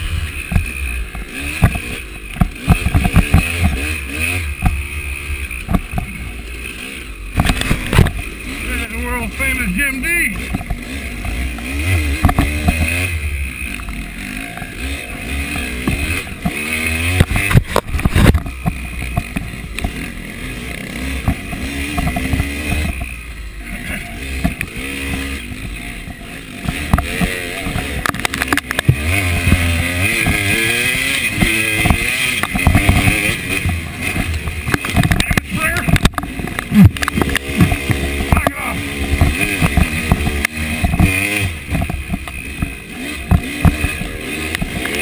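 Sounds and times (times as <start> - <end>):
dirt bike engine revving: 0.0 - 45.0
sharp knocks: 26.6 - 44.8.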